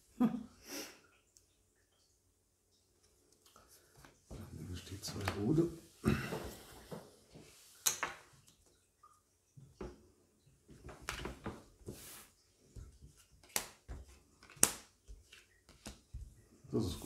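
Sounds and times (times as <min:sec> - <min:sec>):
playing cards laid on wooden table: 0:03.4 - 0:08.6, 0:10.7 - 0:17.0.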